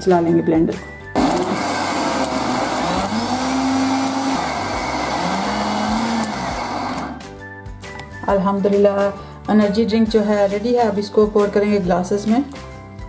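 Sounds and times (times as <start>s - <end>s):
blender whirring: 1.2s - 7.3s.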